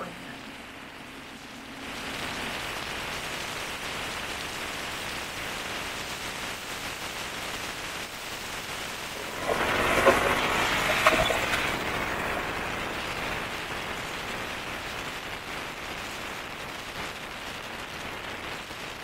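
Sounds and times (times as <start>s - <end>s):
motorcycle engine: 9.0s - 13.6s
motorcycle road noise: 9.0s - 14.7s.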